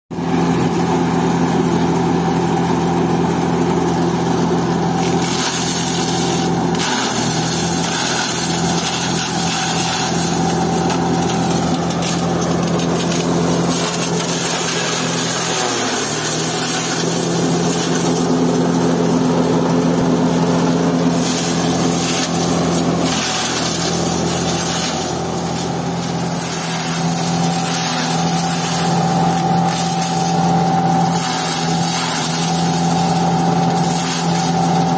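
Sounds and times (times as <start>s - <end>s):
chaff cutter machine hum: 0.1s - 34.9s
stalks being chopped: 5.0s - 10.3s.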